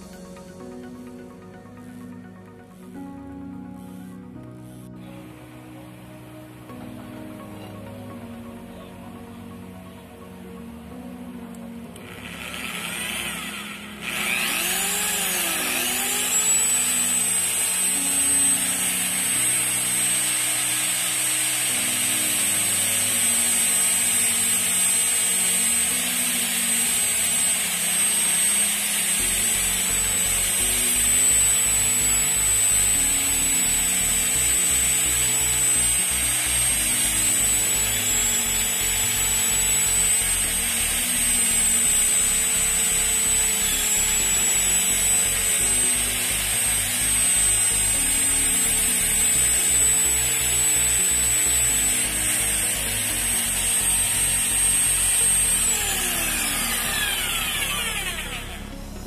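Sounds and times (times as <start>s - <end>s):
power tool motor whining: 11.6s - 59.0s
strip rubbing spinning armature: 12.0s - 58.7s.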